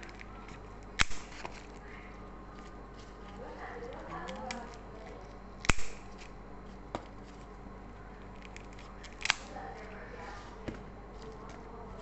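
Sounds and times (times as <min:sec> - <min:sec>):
scissors snipping stems: 0:00.9 - 0:01.6, 0:05.6 - 0:06.4, 0:08.4 - 0:09.5.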